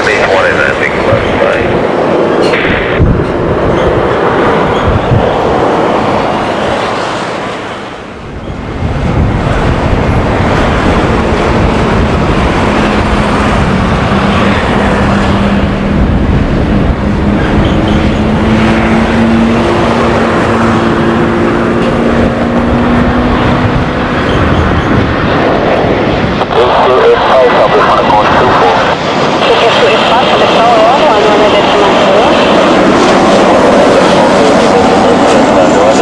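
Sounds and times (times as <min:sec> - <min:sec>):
jet engines rumbling: 0:00.0 - 0:36.0
wind buffeting microphone: 0:00.0 - 0:36.0
low engine hum: 0:08.2 - 0:26.6.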